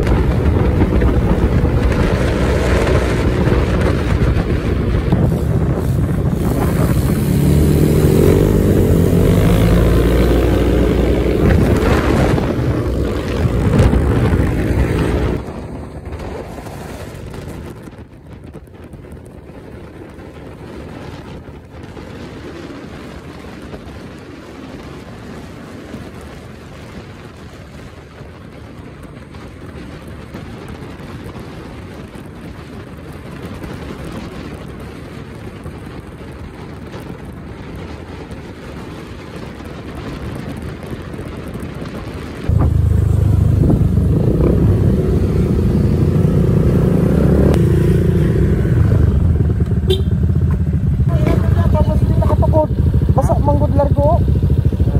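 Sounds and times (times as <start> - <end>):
scooter engine: 0.0 - 17.8, 42.1 - 54.9
loud low scooter engine on rough road: 0.0 - 54.9
wind and road rush: 0.0 - 54.9.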